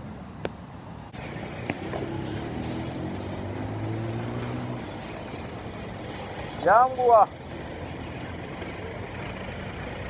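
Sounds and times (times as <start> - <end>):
road noise: 0.0 - 10.0
truck engine running: 1.2 - 10.0.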